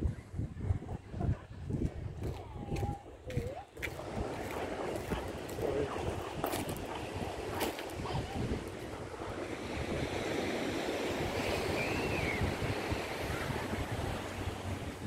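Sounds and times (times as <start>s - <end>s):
wind buffeting microphone: 0.0s - 15.0s
sea surf: 3.7s - 15.0s.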